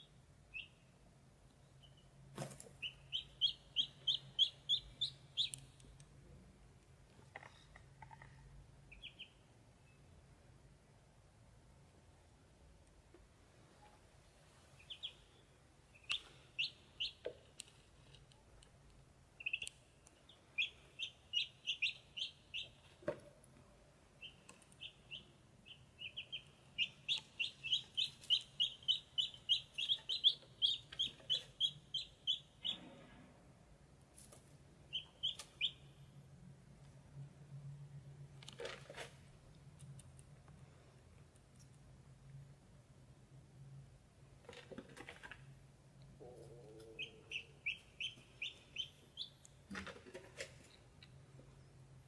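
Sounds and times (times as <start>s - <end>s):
ducklings peeping: 0.0s - 0.9s, 2.7s - 5.8s, 8.9s - 10.1s, 14.8s - 17.4s, 19.3s - 23.0s, 24.2s - 32.8s, 34.9s - 36.0s, 46.2s - 49.6s.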